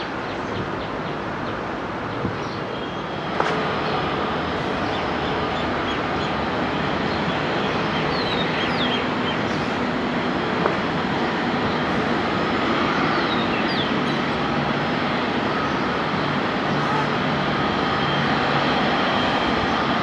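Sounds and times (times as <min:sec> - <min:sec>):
jet engine roar: 0:02.6 - 0:20.0.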